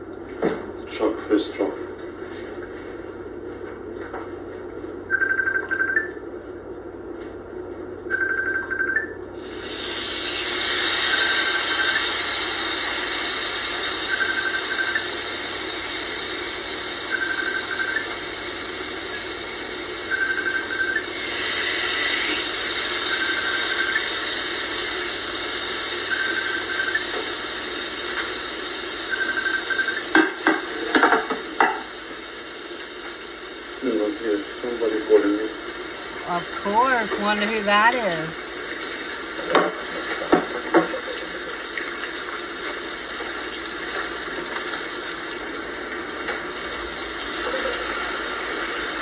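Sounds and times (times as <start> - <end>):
phone ringing with beeps: 5.1 - 6.2, 8.1 - 9.2, 14.1 - 15.0, 17.1 - 18.0, 20.1 - 21.0
food frying and sizzling: 9.3 - 49.0.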